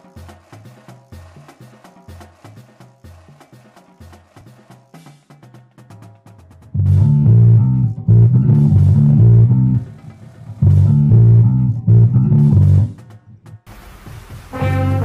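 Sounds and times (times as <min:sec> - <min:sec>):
electric bass guitar solo: 0:06.8 - 0:09.9, 0:10.6 - 0:13.0.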